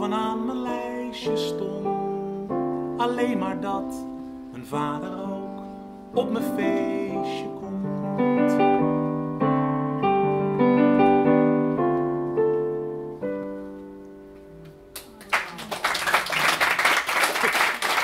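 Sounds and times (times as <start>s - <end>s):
electric piano chords: 0.0s - 15.1s
audience applauding: 14.9s - 18.0s.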